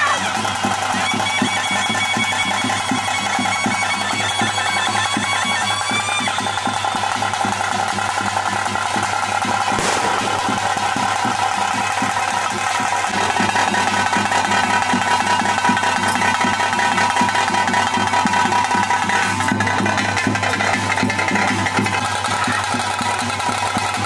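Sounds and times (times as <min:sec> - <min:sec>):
ritual drumming: 0:00.0 - 0:24.0.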